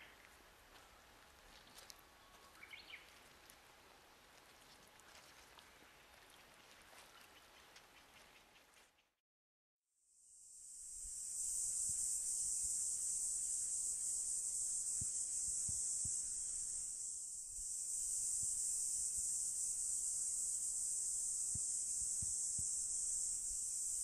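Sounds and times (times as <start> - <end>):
insects chorus: 0.0 - 0.3, 1.7 - 3.3, 10.2 - 24.0.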